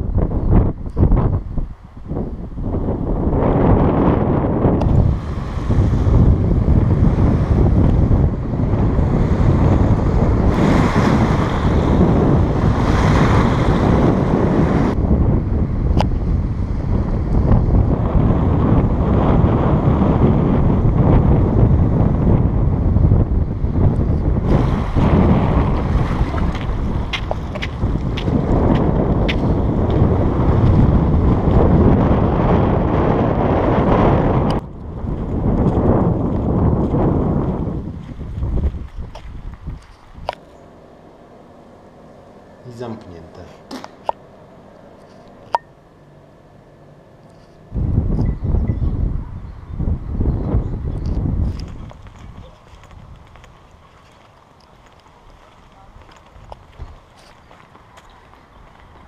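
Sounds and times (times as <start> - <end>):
wind buffeting microphone: 0.0 - 43.2, 43.9 - 59.0
small waves breaking on shore: 5.0 - 7.6, 9.0 - 14.9, 24.4 - 28.6.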